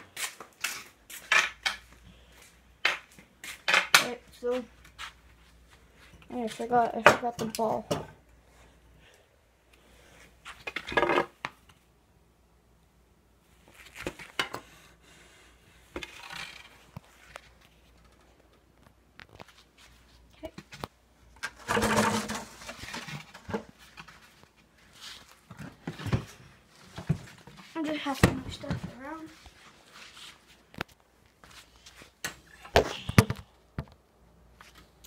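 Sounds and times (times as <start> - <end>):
objects knocking and scraping: 10.5 - 11.6, 20.7 - 24.5, 25.4 - 29.0.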